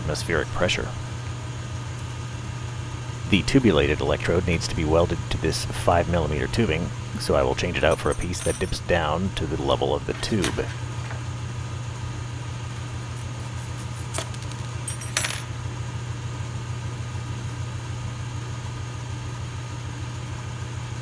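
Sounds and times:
glass and metal clinks: 8.0 - 8.8, 14.9 - 15.5.

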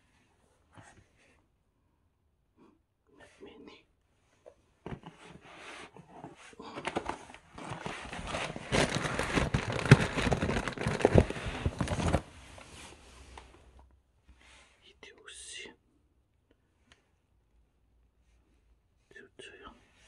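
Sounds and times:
plastic wrap crinkling: 6.8 - 12.7.

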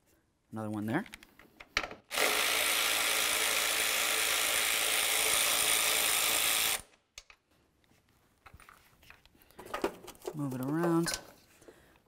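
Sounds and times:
cordless electric ratchet running: 2.1 - 6.9.

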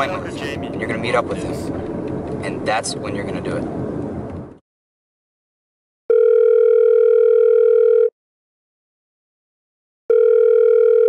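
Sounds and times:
telephone ringback tone: 6.1 - 8.1, 10.1 - 11.0.

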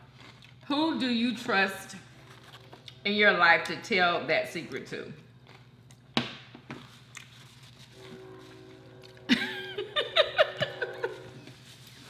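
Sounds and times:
person laughing: 9.3 - 11.5.

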